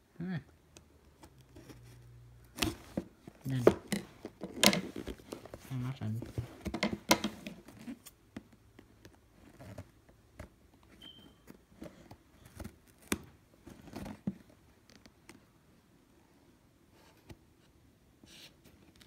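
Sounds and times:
cardboard box being handled: 1.5 - 14.6.

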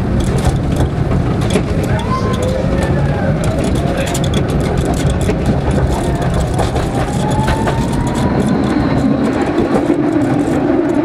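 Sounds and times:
tram wheels rumbling on rails: 0.0 - 11.0
sharp clicks: 3.4 - 11.0.

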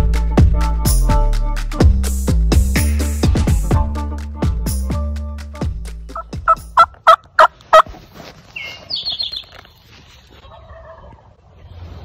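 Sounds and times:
small bird chirping: 8.5 - 9.8
turkey yelping: 10.4 - 11.3.

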